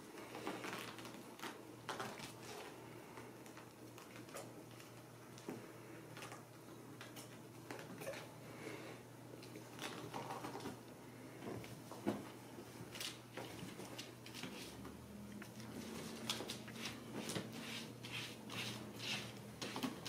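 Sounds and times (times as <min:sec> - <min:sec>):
kittens scratching and scampering: 0:00.2 - 0:05.5, 0:09.4 - 0:10.8, 0:12.8 - 0:20.0.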